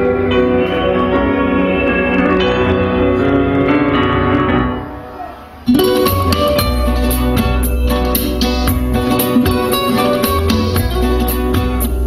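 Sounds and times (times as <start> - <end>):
music: 0.0 - 12.0
fast rhythmic music: 5.7 - 12.0.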